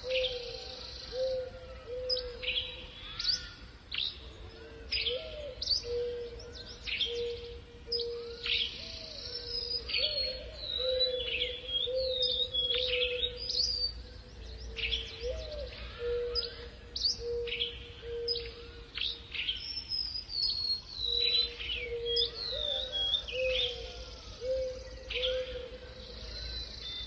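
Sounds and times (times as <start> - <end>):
birds chirping and whistling: 5.1 - 27.0.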